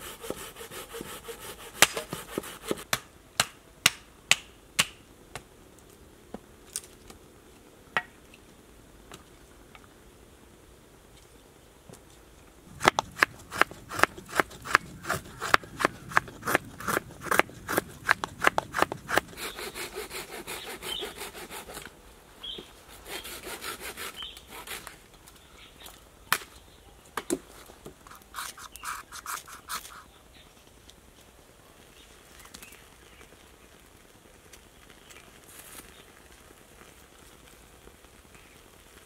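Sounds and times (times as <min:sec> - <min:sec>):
knife scraping dry wood: 0:00.0 - 0:02.9, 0:12.7 - 0:25.0, 0:28.1 - 0:30.1.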